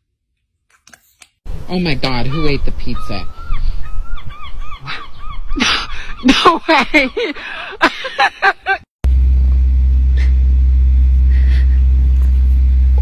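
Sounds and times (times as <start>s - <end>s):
rising and falling calls: 2.3s - 6.3s
loud low hum: 9.0s - 13.0s.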